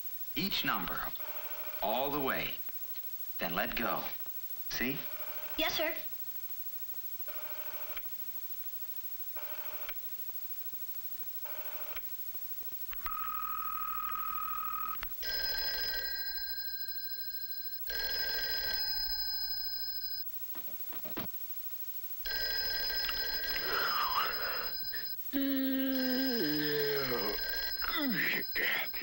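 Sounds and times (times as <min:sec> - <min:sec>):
telephone bell ringing: 0:01.2 - 0:02.0, 0:04.8 - 0:05.9, 0:07.3 - 0:08.0, 0:09.4 - 0:09.9, 0:11.5 - 0:12.0, 0:13.1 - 0:20.2, 0:22.2 - 0:25.2, 0:25.8 - 0:29.0.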